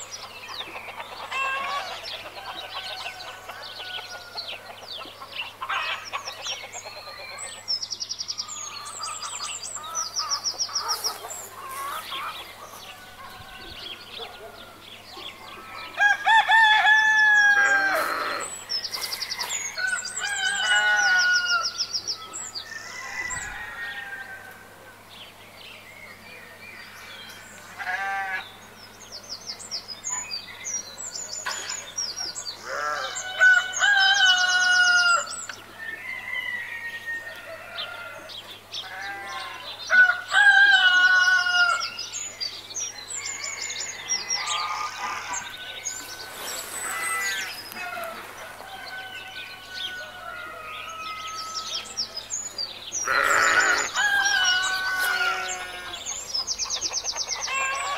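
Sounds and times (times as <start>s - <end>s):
roosters crowing: 0.0s - 6.4s, 8.4s - 24.9s, 26.8s - 28.7s, 32.5s - 42.2s, 43.0s - 52.2s, 53.0s - 57.9s
clucking calls: 9.0s - 14.6s.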